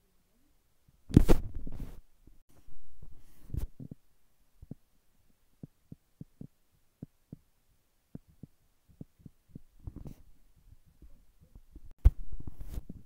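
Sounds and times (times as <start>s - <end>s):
fingertips tapping touchscreen: 8.1s - 10.2s.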